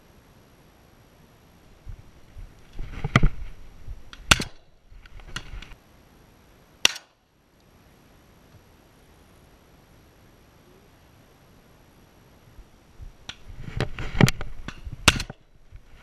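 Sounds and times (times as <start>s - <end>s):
shotgun shots: 4.3s - 4.7s, 6.8s - 7.2s.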